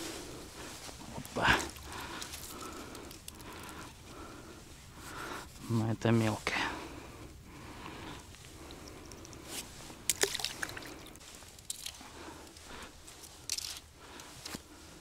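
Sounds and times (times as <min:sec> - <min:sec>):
wet squelching and dripping: 0:08.3 - 0:12.0.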